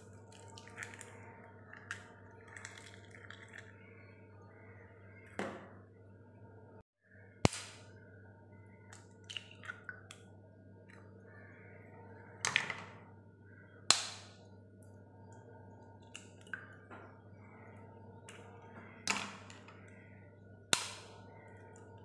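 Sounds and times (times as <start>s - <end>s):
eggshell crackling: 0.0s - 4.6s.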